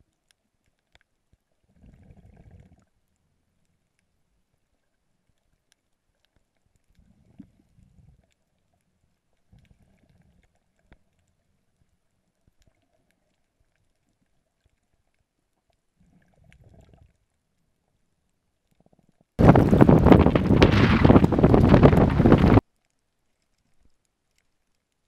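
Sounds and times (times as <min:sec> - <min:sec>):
muffled low bumps underwater: 0:06.7 - 0:17.7, 0:18.9 - 0:22.6.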